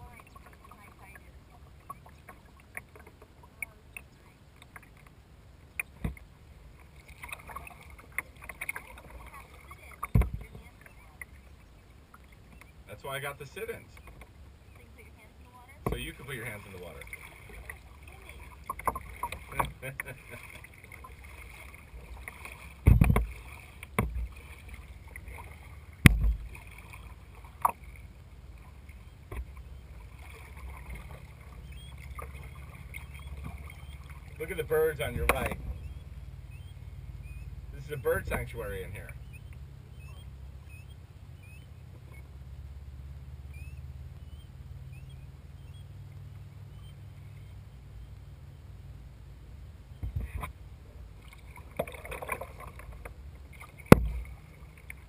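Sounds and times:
water splashing on kayak hull: 0.0 - 42.4, 49.9 - 55.0
hollow knocks on plastic hull: 22.8 - 23.3, 24.0 - 24.3, 53.9 - 54.2.

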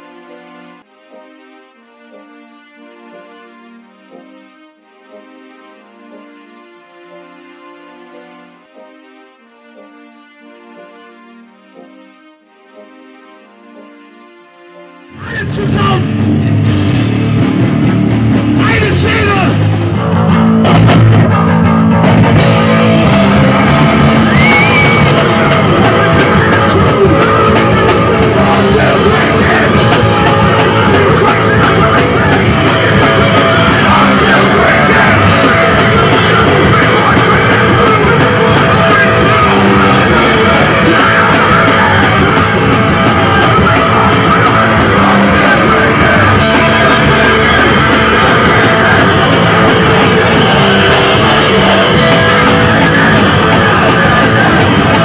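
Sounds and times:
rock band with electric guitars: 15.1 - 55.0
shouted vocals: 15.2 - 16.1, 18.6 - 19.6, 22.8 - 55.0.

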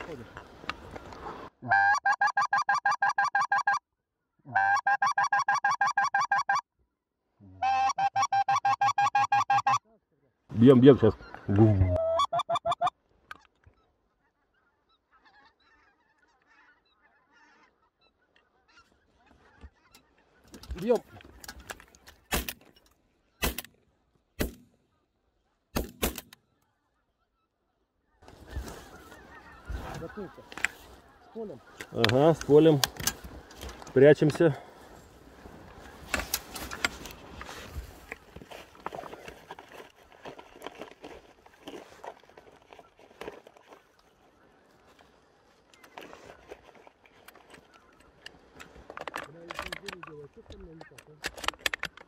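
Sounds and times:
goose call honking clucks: 0.0 - 3.8, 4.4 - 6.7, 7.4 - 9.9, 10.8 - 21.6, 26.4 - 37.0.

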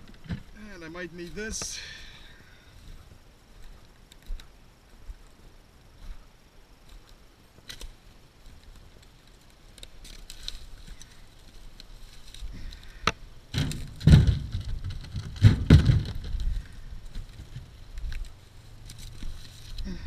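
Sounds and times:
firewood thudding into metal trailer: 13.1 - 16.7.

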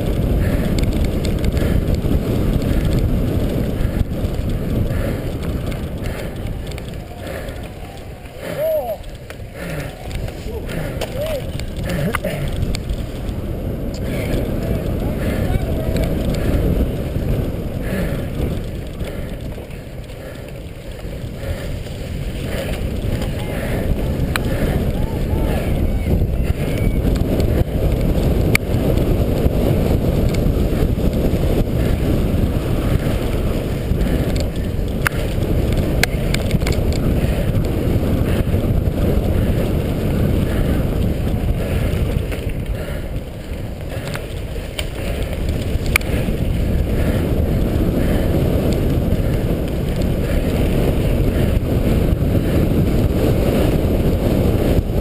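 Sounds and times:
bike rumbling and rattling on dirt: 0.0 - 55.0
wind buffeting microphone: 0.0 - 55.0.

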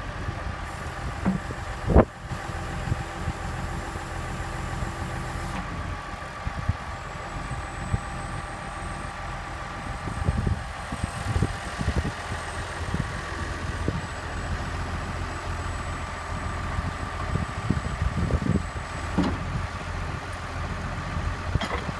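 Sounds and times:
tractor engine idling: 0.0 - 21.9
crane boom clunks and knocks: 1.2 - 1.6.

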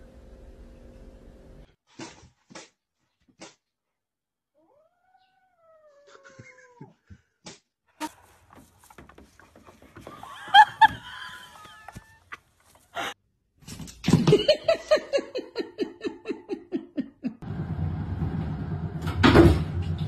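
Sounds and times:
person laughing: 6.1 - 7.1, 10.0 - 13.2, 14.2 - 17.4.

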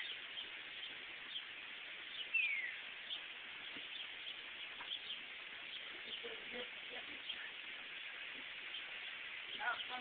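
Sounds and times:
high bird chirps: 0.0 - 6.4
steady hiss: 0.0 - 10.0
bird whistle: 2.3 - 2.8.

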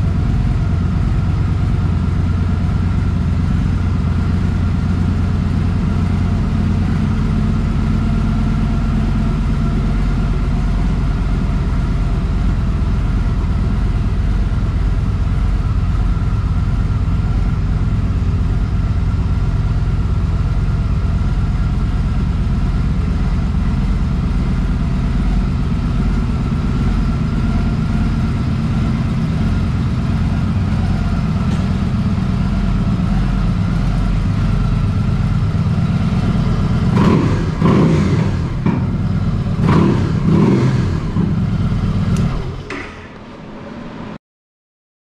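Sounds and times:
motorcycle engine idling: 0.0 - 43.1
engine throttle blips: 8.9 - 43.4.

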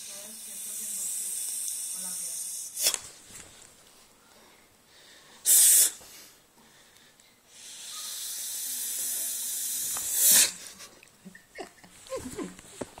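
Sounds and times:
person hissing: 0.0 - 3.0, 5.4 - 6.3, 7.5 - 10.8.

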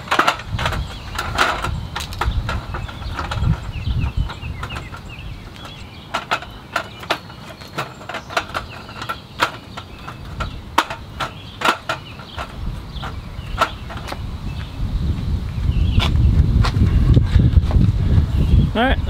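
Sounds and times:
aluminum table slats clacking: 0.0 - 14.2.

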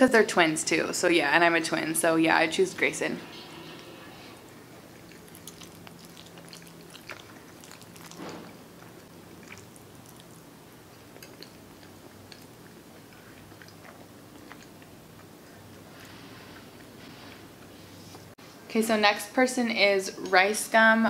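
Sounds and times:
close-up chewing: 4.4 - 17.0.

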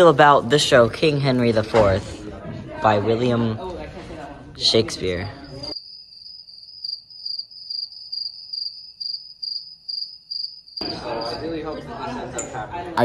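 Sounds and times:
cricket chirping: 5.2 - 11.8.

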